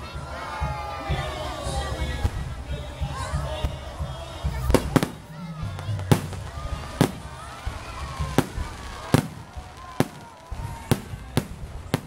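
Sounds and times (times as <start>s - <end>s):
fireworks shells bursting: 4.7s - 12.0s.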